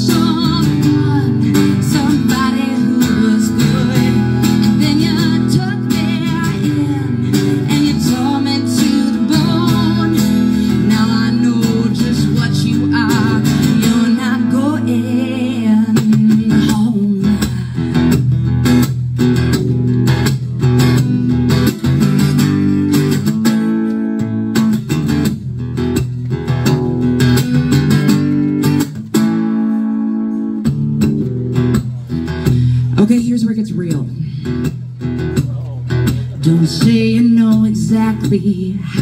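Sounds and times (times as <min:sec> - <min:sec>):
woman singing: 0:00.0 - 0:18.1, 0:36.3 - 0:39.0
acoustic guitar strumming: 0:00.0 - 0:39.0.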